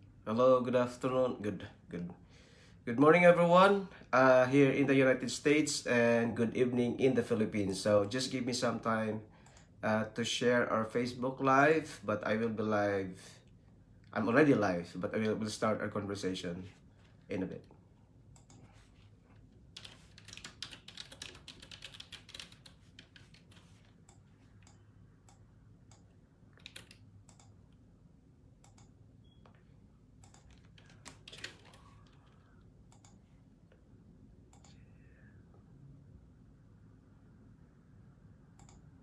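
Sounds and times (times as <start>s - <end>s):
faint keyboard typing: 17.5s - 27.9s, 28.6s - 33.9s, 34.5s - 35.0s, 38.5s - 38.9s.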